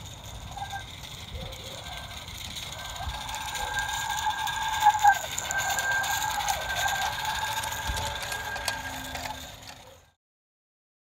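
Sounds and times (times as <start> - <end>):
model steam locomotive running: 0.0 - 10.2.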